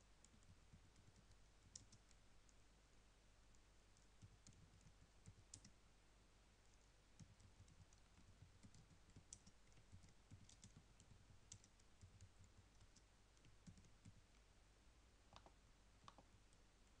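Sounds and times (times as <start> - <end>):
keyboard typing: 0.2 - 2.2, 4.0 - 5.8, 7.2 - 14.4.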